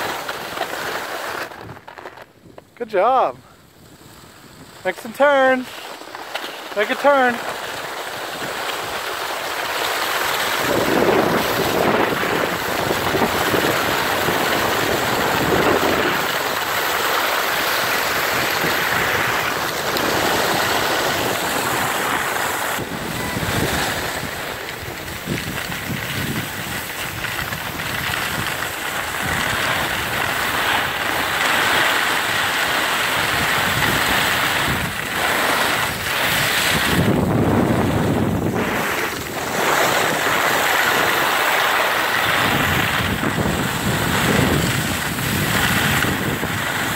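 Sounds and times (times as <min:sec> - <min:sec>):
skis scraping over snow: 0:00.0 - 0:46.9
wind buffeting microphone: 0:10.4 - 0:17.0, 0:17.6 - 0:46.9.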